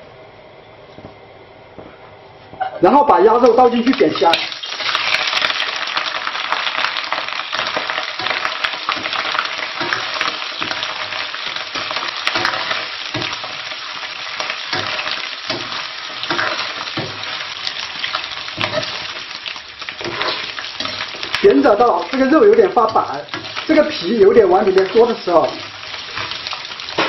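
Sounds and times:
meat sizzling in oil: 0:03.7 - 0:27.0
metal ladle scraping a wok: 0:20.0 - 0:21.2.

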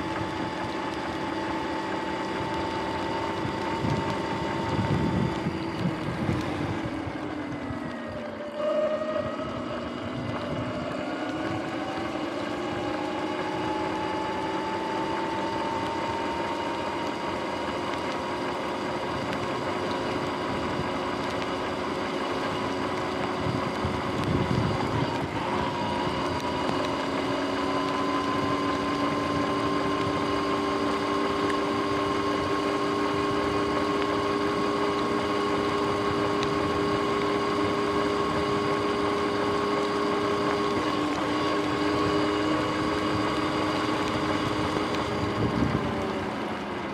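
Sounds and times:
electric motor whine: 0:00.0 - 0:46.9
wind on microphone: 0:03.4 - 0:07.8, 0:23.3 - 0:26.4, 0:44.4 - 0:46.2.

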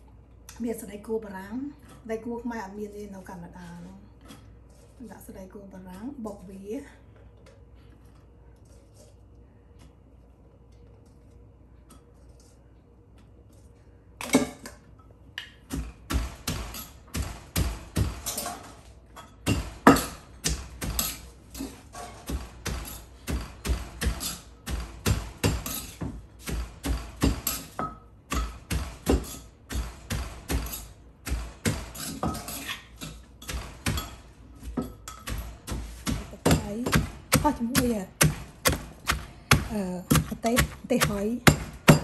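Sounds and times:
wooden pestle pounding in mortar: 0:15.7 - 0:18.4, 0:19.4 - 0:21.2, 0:22.2 - 0:32.5, 0:33.4 - 0:42.0.

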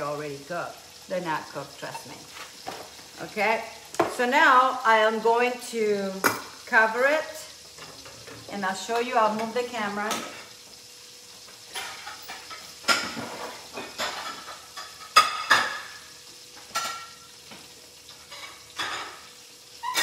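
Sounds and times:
cookware clinking and knocking: 0:16.7 - 0:17.2.

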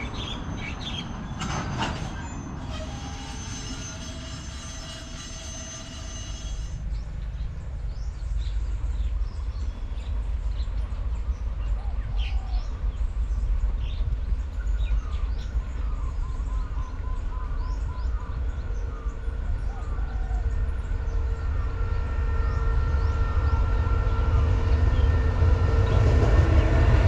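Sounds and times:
train wheels squealing on rails: 0:00.0 - 0:07.2, 0:14.4 - 0:27.0
steady low rumble: 0:06.8 - 0:27.0.

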